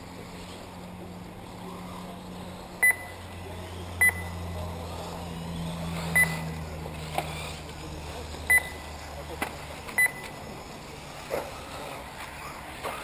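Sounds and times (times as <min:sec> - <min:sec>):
short electronic beeps: 0:02.8 - 0:03.2, 0:04.0 - 0:04.4, 0:06.2 - 0:06.4, 0:08.5 - 0:08.8, 0:10.0 - 0:10.3.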